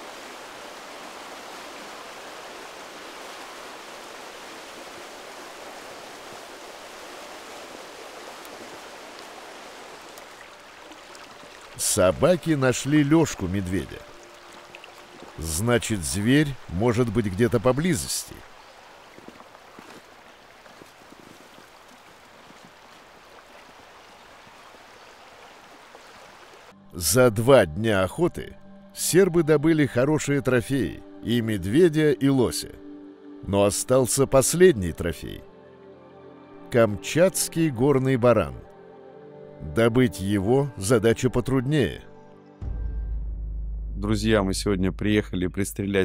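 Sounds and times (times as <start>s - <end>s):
stream water rushing: 0.0s - 26.8s.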